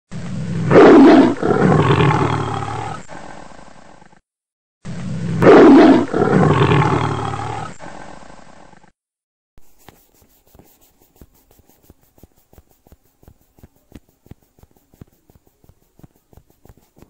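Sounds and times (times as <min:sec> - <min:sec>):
big cat roaring: 0:00.4 - 0:04.0, 0:05.2 - 0:08.2.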